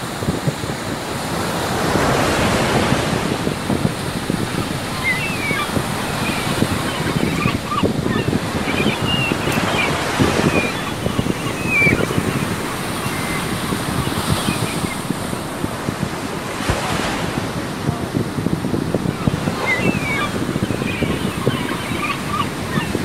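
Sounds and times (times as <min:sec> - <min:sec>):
surf breaking on beach: 0:00.0 - 0:23.0
wind buffeting microphone: 0:00.0 - 0:23.0.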